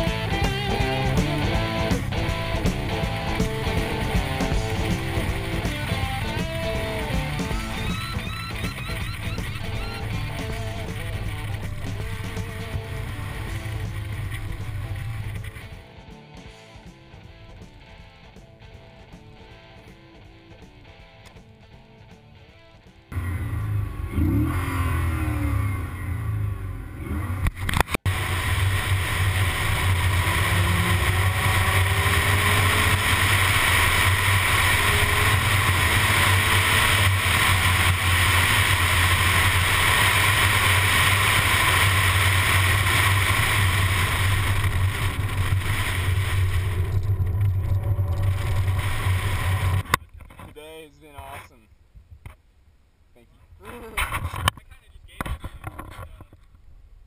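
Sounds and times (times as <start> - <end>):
car engine and road rumble: 0.0 - 16.4, 23.1 - 57.0
wind noise on microphone: 27.5 - 50.4.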